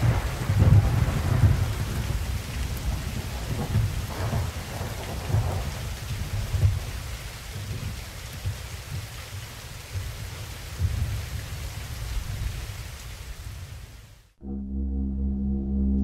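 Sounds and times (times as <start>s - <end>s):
rolling thunder: 0.0s - 8.0s
rain hissing: 0.0s - 14.4s.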